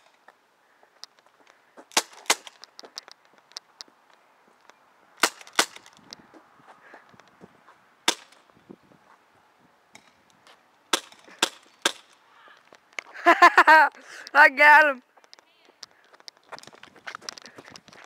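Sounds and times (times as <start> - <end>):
airsoft pistol shots: 5.2 - 5.8.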